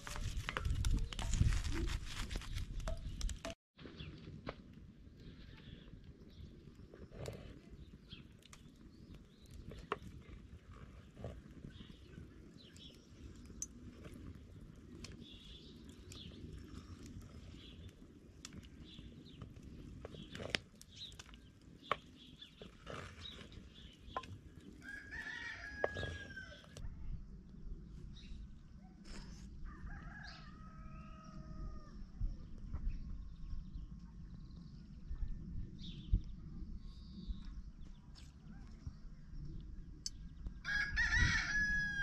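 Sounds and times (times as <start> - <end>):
rooster crowing: 24.8 - 26.7, 29.6 - 31.9, 40.6 - 42.0.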